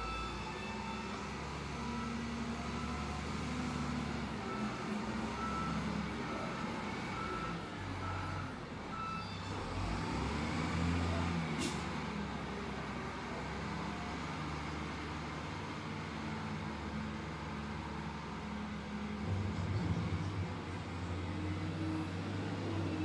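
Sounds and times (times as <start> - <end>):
reversing alarm beeping: 0.0 - 10.0
diesel engine running: 0.0 - 23.0.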